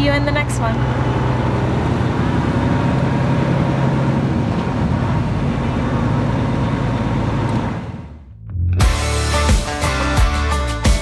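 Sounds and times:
road noise: 0.0s - 8.4s
diesel engine drone: 0.0s - 10.5s.

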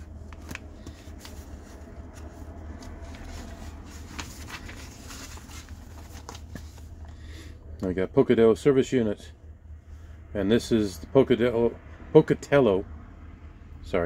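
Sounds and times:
paper pages rustling: 0.0s - 7.2s
steady low hum: 0.0s - 14.0s.

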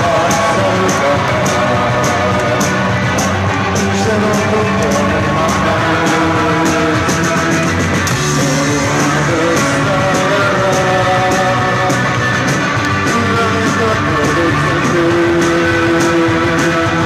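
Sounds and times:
live rock band playing: 0.0s - 17.0s.

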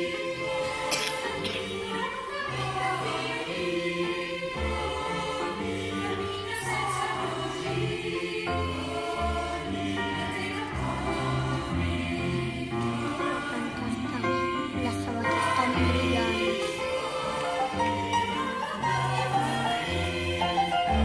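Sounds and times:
keyboard accompaniment: 0.0s - 21.0s
mixed choir singing: 0.0s - 21.0s.

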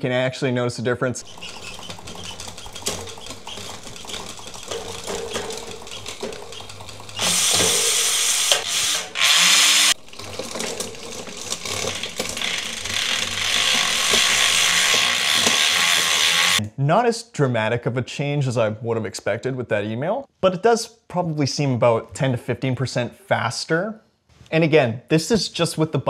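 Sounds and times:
bicycle chain whirring: 1.2s - 16.6s
derailleur clicks: 1.2s - 16.6s.

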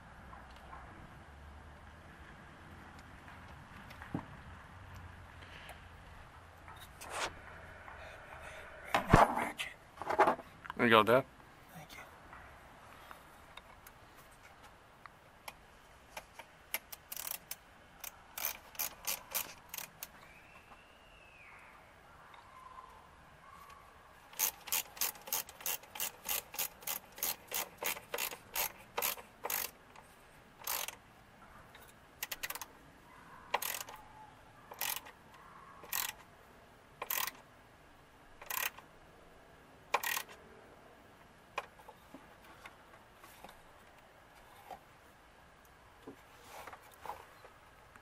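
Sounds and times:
socket ratchet clicking: 16.7s - 20.1s, 24.3s - 29.8s, 30.6s - 31.0s, 32.2s - 32.7s, 33.6s - 34.0s, 34.7s - 35.2s, 35.8s - 36.2s, 37.0s - 37.4s, 38.4s - 38.8s, 39.9s - 40.4s.

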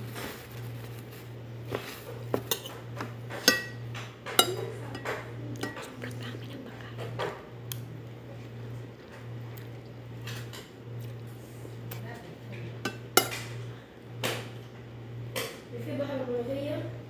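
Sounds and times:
steady low hum: 0.0s - 17.0s
fork clinking on ceramic bowl: 2.4s - 2.8s, 3.4s - 5.9s, 12.8s - 13.5s.

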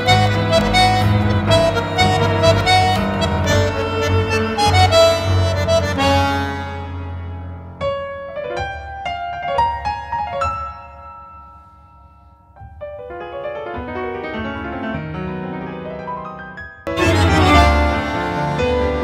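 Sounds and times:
grand piano tango: 0.0s - 19.0s.

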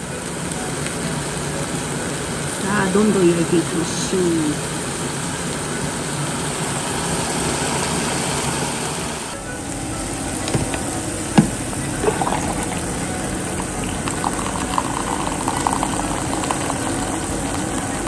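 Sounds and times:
meat sizzling in a frying pan: 0.0s - 18.0s
hot water pouring into cup: 10.3s - 18.0s.

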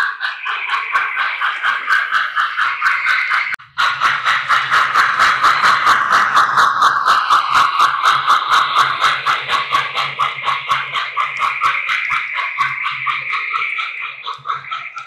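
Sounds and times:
model locomotive running: 0.0s - 15.0s.

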